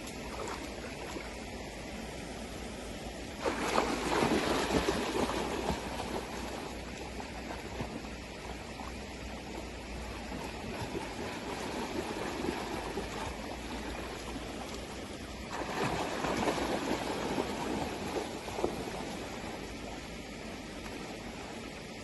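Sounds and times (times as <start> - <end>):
river water washing: 0.0 - 22.0
dog splashing through water: 3.4 - 8.8, 10.0 - 19.6.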